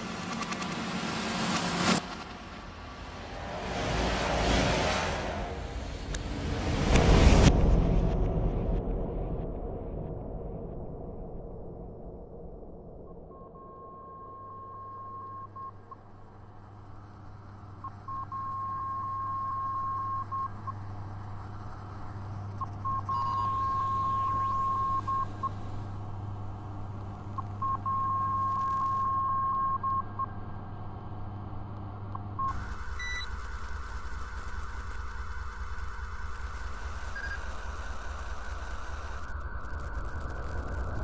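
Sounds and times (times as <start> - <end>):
low drone hum: 0.0 - 41.0
high beep-like tone: 22.8 - 25.8, 37.1 - 37.6.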